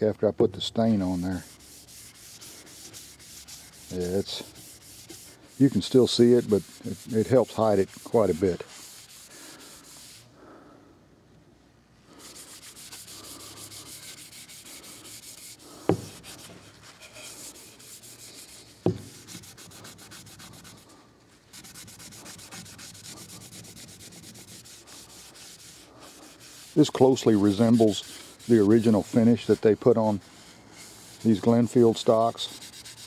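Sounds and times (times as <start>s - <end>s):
paper towel rubbing wood: 0.9s - 10.3s, 12.1s - 33.0s
sharp knocks: 15.8s - 16.2s, 18.8s - 19.2s.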